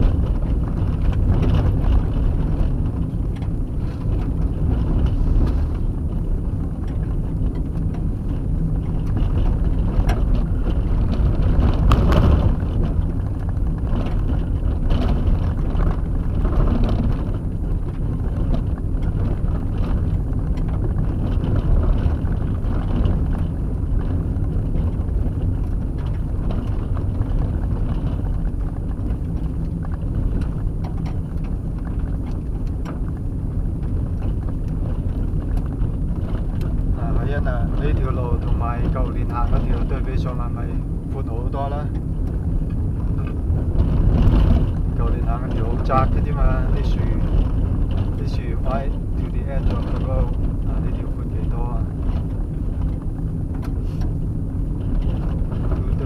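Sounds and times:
road and tyre rumble: 0.0s - 56.0s.

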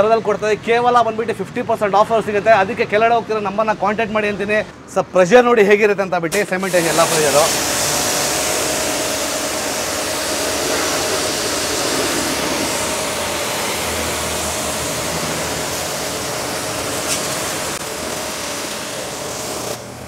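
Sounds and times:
pressure washer jets hissing: 6.3s - 20.0s.

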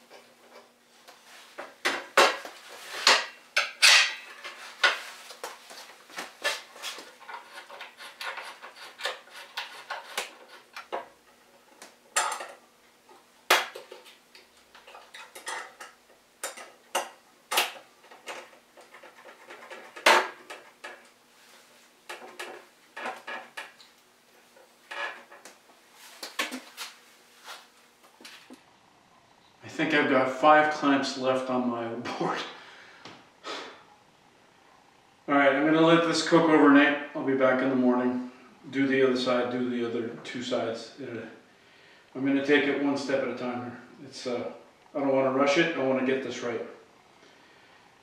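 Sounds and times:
metal clamps clanking: 3.0s - 5.0s.

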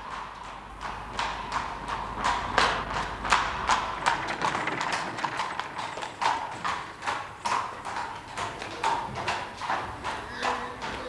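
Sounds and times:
horse hooves clip-clopping on street: 0.0s - 11.0s.

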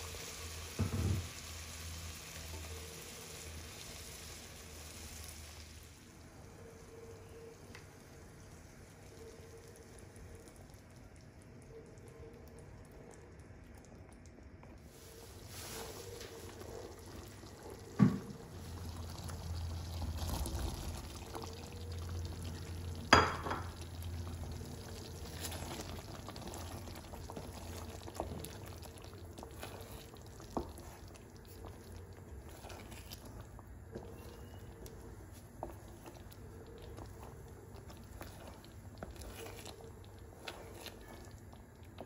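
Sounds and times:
sauce simmering in a pan: 0.0s - 42.0s
wooden spatula stirring: 14.6s - 42.0s.

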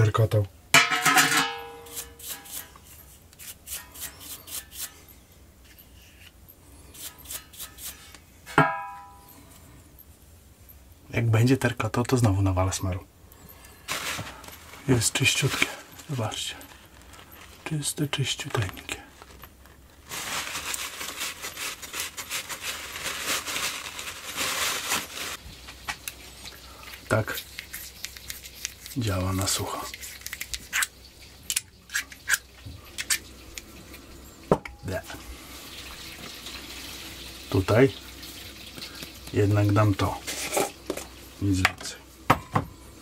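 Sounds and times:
ringing metal strike: 8.5s - 9.5s.

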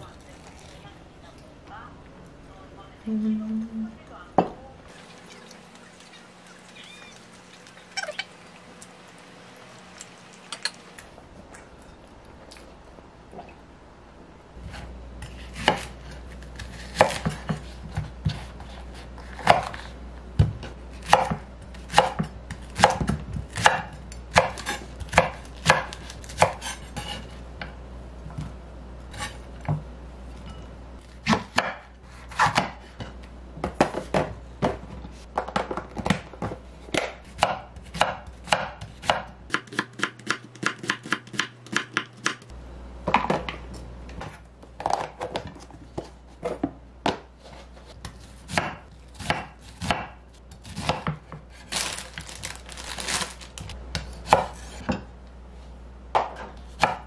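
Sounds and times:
knife chopping on wooden board: 35.5s - 42.4s, 48.0s - 51.4s.

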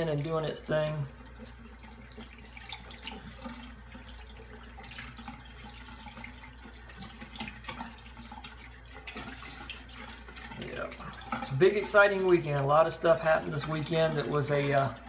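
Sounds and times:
small water splashes: 0.0s - 15.0s
tap water running into sink: 0.0s - 15.0s.

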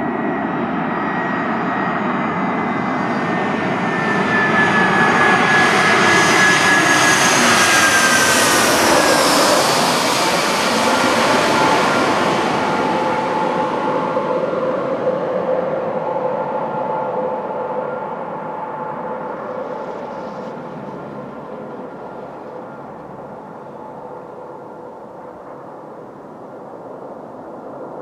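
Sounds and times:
jet airliner passing overhead: 0.0s - 28.0s.

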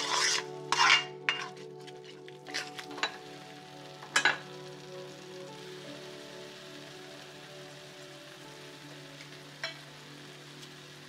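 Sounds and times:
spatula scraping metal wok: 0.0s - 3.1s
food sizzling: 0.0s - 11.0s.

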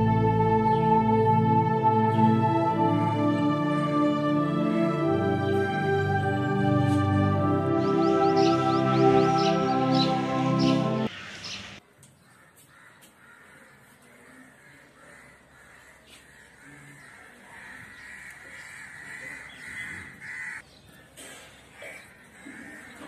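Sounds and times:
music track: 0.0s - 11.1s
crows cawing: 12.2s - 21.2s, 21.8s - 23.0s.

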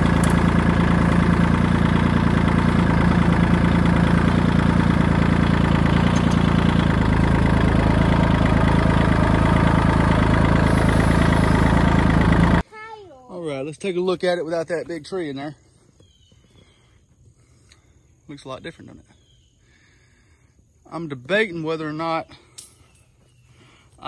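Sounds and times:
tractor diesel engine running: 0.0s - 13.6s.

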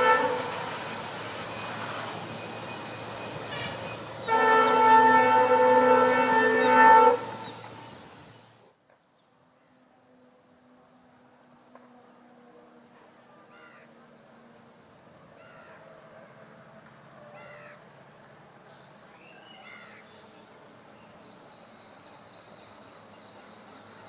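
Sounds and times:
crow cawing: 13.5s - 13.9s, 17.4s - 17.8s.

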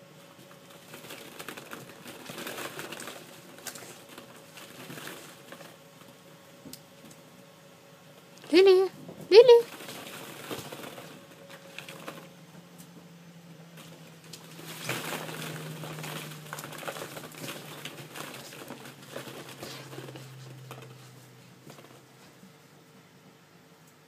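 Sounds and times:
plastic balls clacking and rustling: 0.4s - 6.2s, 8.4s - 12.4s, 13.8s - 22.1s.

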